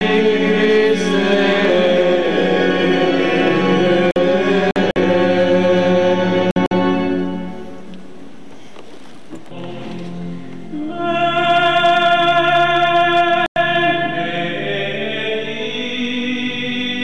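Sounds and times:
church music with held notes: 0.0 - 17.0.

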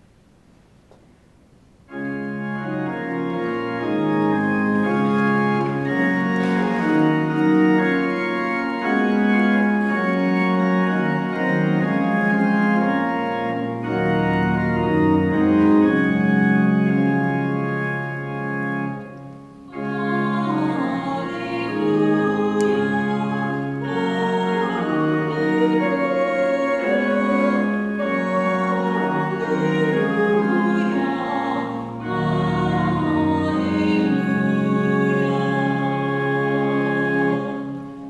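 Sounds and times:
church organ chords: 1.9 - 38.0.

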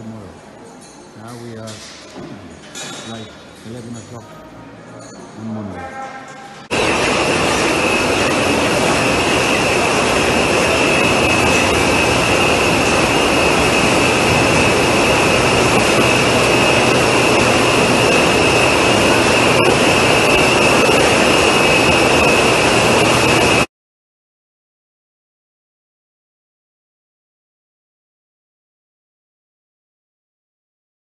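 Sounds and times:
high machine whine: 5.3 - 23.7
loud machine noise: 6.6 - 23.7.

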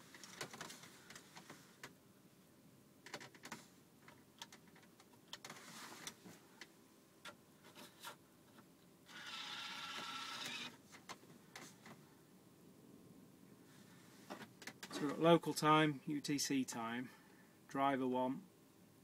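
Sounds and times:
small motor whirring: 9.1 - 10.8.

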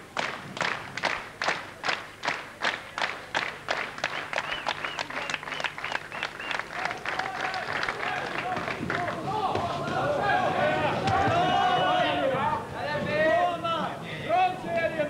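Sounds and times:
crowd clapping in rhythm: 0.0 - 11.6
voices calling out: 4.4 - 15.0.

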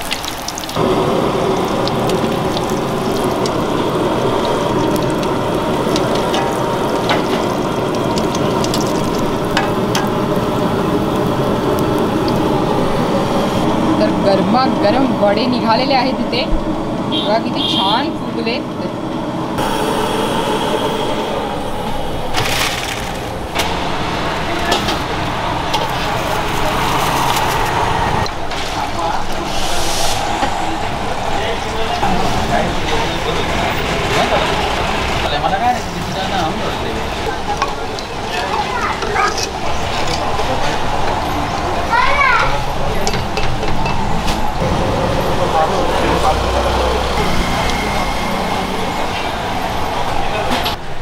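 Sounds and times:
food deep-frying in oil: 0.0 - 13.6
hot oil sizzling: 0.0 - 16.2, 19.6 - 43.0.

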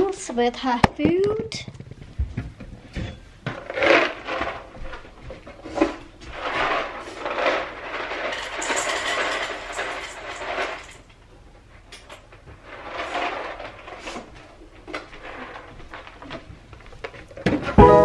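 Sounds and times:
pet food rustling and rattling: 3.6 - 11.1, 12.6 - 18.0.

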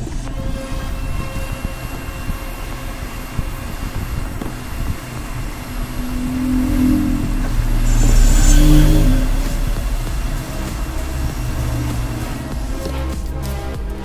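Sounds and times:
low rumble: 0.0 - 14.0
steady tones: 0.0 - 14.0.

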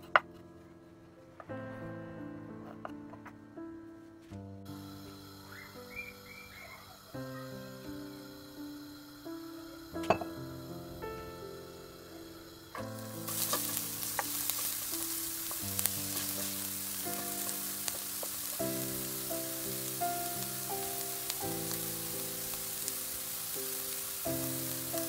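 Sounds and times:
soft background music: 0.0 - 25.0
onions sizzling in hot oil: 4.7 - 25.0
wooden spoon stirring: 12.9 - 21.9.

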